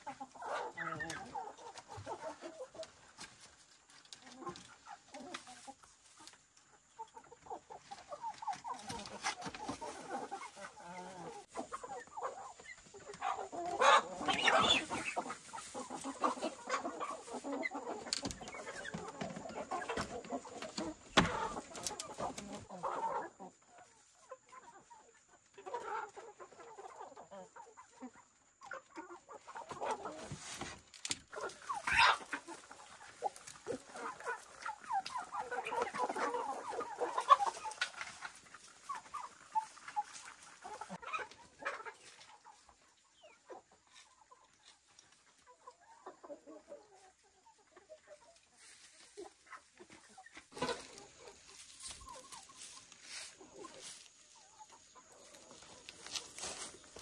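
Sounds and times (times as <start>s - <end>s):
chickens clucking: 0.0s - 57.0s.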